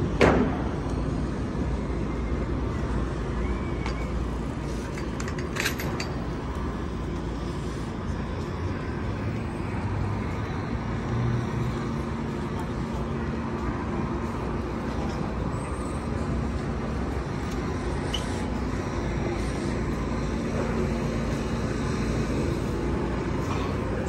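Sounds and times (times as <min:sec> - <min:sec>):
rumble of passing cars: 0:00.0 - 0:24.0.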